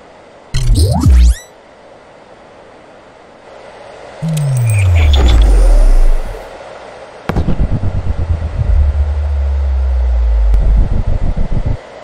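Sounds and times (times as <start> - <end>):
falling bass sweep: 0.6 - 1.5, 4.2 - 6.5, 7.3 - 11.8
sharp synth hit: 0.6 - 1.5, 4.2 - 6.5, 7.3 - 11.8
low synth hum: 4.2 - 6.5, 7.3 - 11.9
pulsing deep rumble: 4.2 - 6.5, 7.3 - 11.9.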